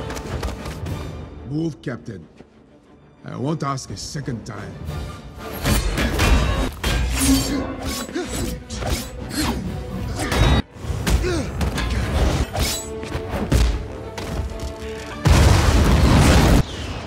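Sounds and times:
film score: 0.0s - 17.0s.

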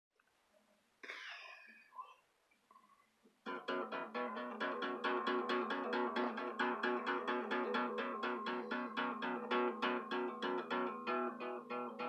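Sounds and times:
acoustic guitar strumming: 3.4s - 12.0s.

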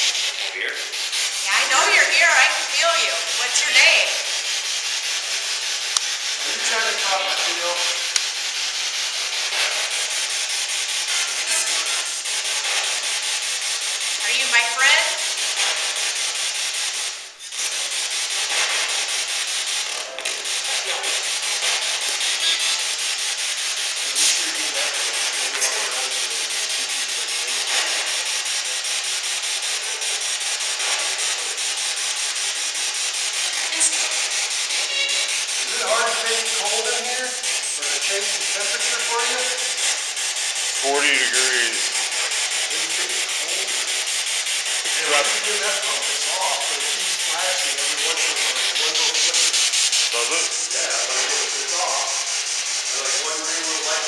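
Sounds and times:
radio static hiss sweeping: 0.0s - 4.4s, 11.0s - 13.3s, 14.1s - 16.0s, 17.5s - 28.8s, 33.4s - 40.1s.

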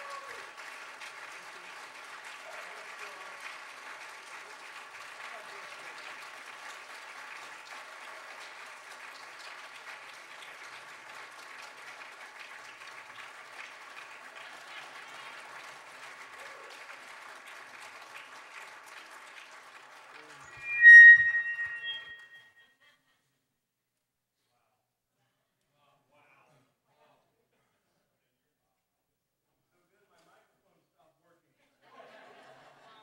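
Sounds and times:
audience applauding: 0.0s - 20.5s.

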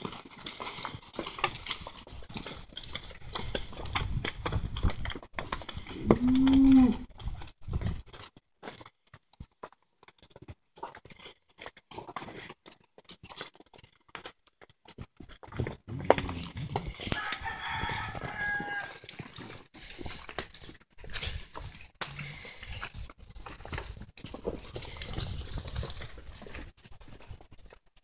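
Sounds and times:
rooster crowing: 17.0s - 19.1s.

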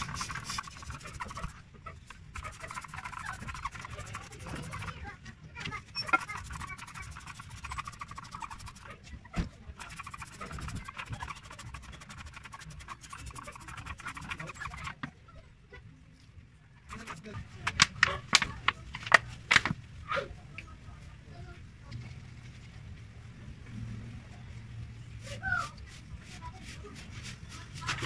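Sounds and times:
gloved hands rubbing rubber hose: 0.0s - 5.0s, 6.0s - 9.0s, 9.8s - 15.0s, 16.9s - 18.4s.

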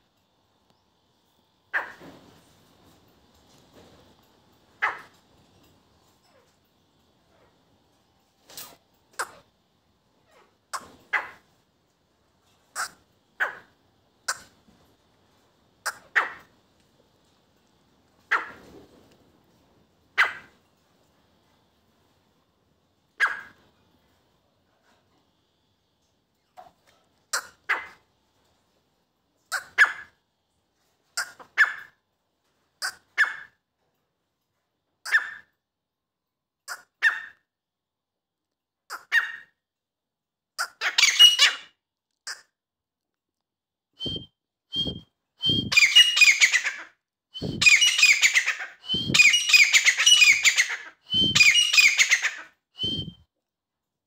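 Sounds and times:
bird calling: 44.0s - 53.2s.

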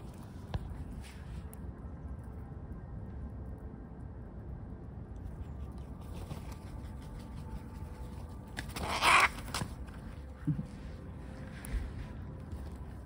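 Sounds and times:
outdoor background: 0.0s - 13.0s
crow call: 8.8s - 9.4s.

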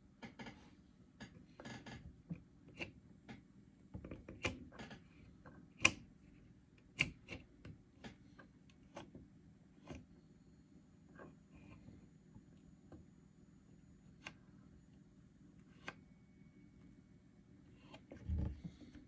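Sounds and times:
faint low hum: 0.0s - 19.0s
knobs and switches clicking: 5.8s - 6.1s.

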